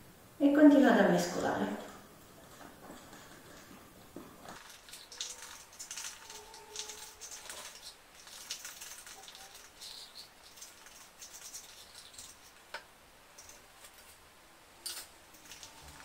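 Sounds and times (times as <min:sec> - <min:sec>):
spoon scraping in plastic cup: 0:04.5 - 0:12.8.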